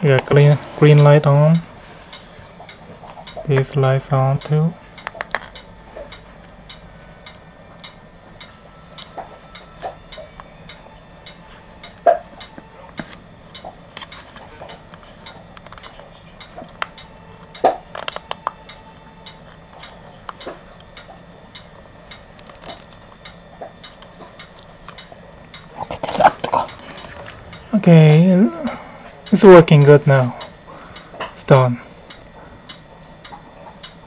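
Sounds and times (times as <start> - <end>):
dial clicking and ticking: 0.1 - 12.6.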